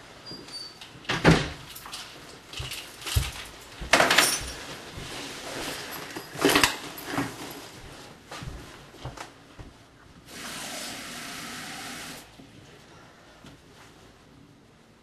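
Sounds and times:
bag rustling: 2.1 - 8.2
footsteps on kitchen floor: 2.2 - 10.3.

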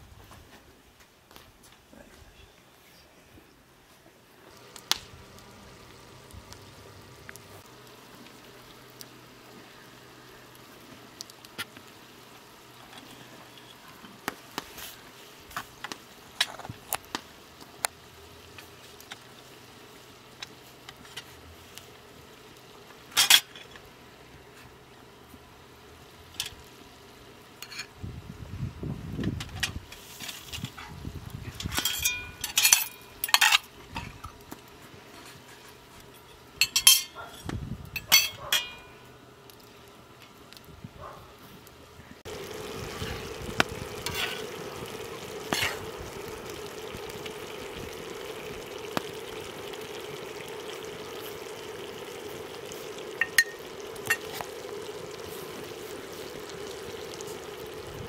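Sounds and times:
metal utensils clinking on pots: 31.6 - 33.7, 36.6 - 37.4, 38.0 - 39.0.

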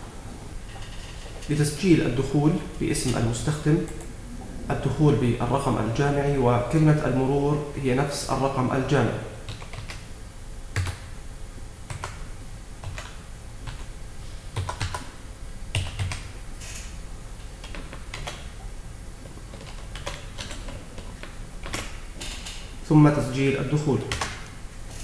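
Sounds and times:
typing on keyboard: 9.5 - 10.0, 11.9 - 12.2, 14.6 - 15.1, 15.7 - 16.3, 19.5 - 21.9.

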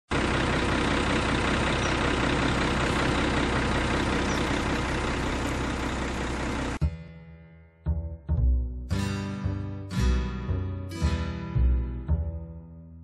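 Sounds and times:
large engine idling: 0.1 - 7.0.

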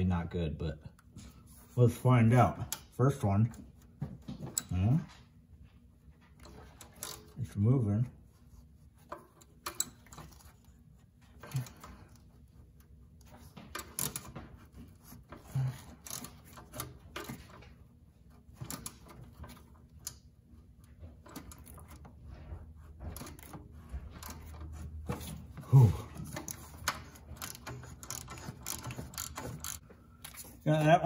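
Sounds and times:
hand ratchet clicking: 15.4 - 17.5, 23.2 - 30.4.

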